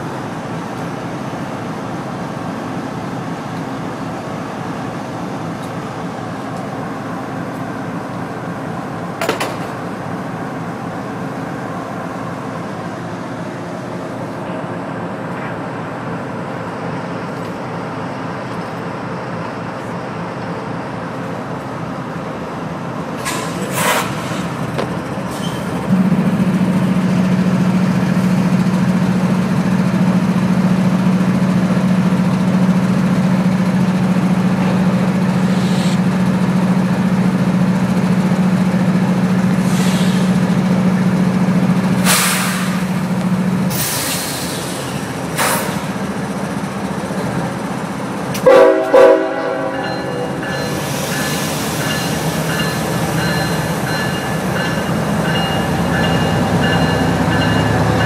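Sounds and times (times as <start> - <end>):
diesel locomotive drone: 0.0 - 58.0
short sharp hisses: 23.2 - 24.6, 35.5 - 36.0, 39.6 - 40.4, 42.0 - 42.8, 43.7 - 45.9.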